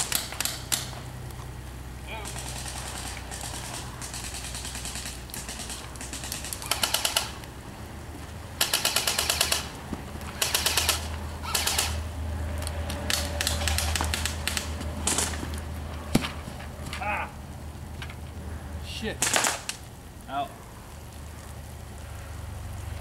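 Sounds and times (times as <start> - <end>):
airsoft rifles firing bursts: 2.2 - 7.4, 8.6 - 12.0, 13.1 - 15.3, 19.2 - 19.8.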